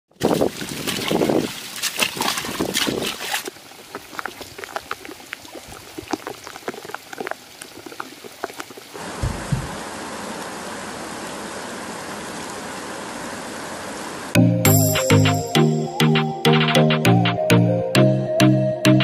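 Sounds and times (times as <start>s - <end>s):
water splashing and sloshing: 0.1s - 14.0s
water dripping: 0.2s - 9.8s.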